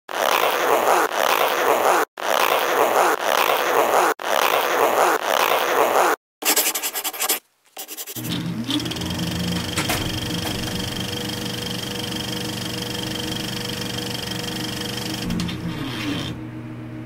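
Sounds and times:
harsh scratchy noise: 0.1s - 8.3s.

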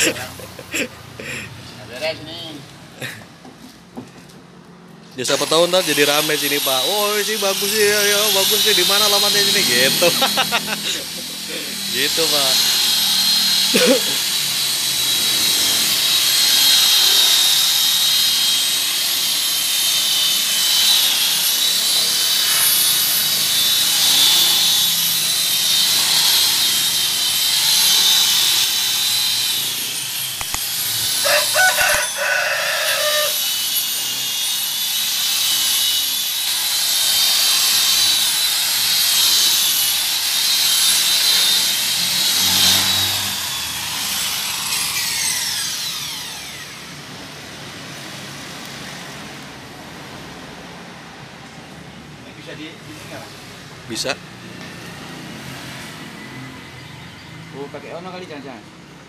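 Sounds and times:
electric car polisher whining: 5.3s - 49.6s
rooster crowing: 31.1s - 33.6s.

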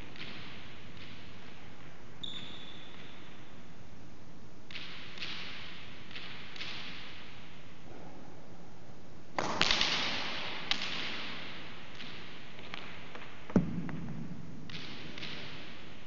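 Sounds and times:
ball striking court walls: 13.5s - 15.8s.

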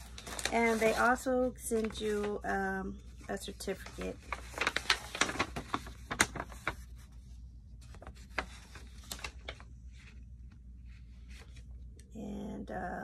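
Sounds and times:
packaging rustling and crinkling: 0.0s - 2.6s, 3.3s - 7.2s, 7.8s - 10.2s.

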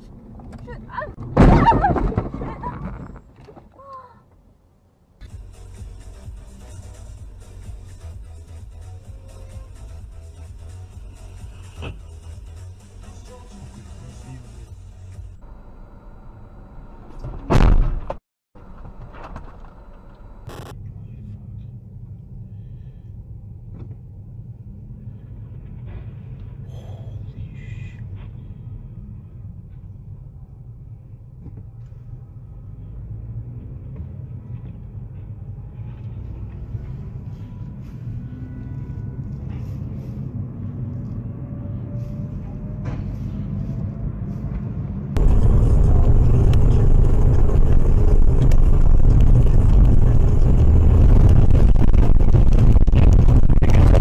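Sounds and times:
road rumble inside a car: 0.0s - 54.0s
road noise hiss: 5.2s - 16.1s, 41.8s - 52.0s.

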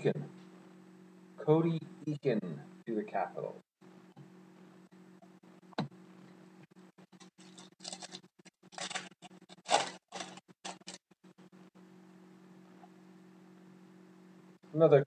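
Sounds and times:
low steady hum: 0.0s - 15.0s
foil wrapper crinkling: 7.2s - 11.1s.

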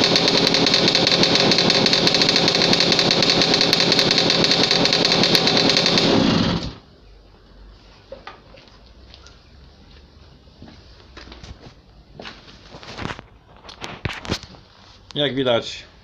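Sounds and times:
moped engine running: 0.0s - 6.8s.

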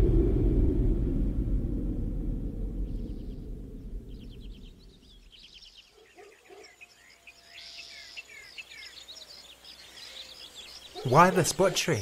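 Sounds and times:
low rumble: 0.0s - 5.6s
small birds chirping: 2.8s - 12.0s.

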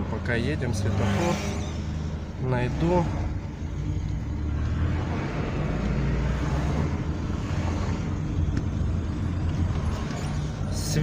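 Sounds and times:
car engine hum: 0.0s - 11.0s
road noise: 0.0s - 11.0s.

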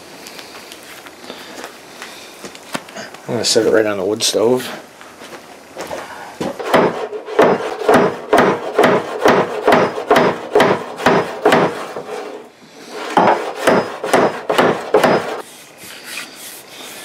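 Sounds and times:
rag rubbing over axe: 11.8s - 13.7s.

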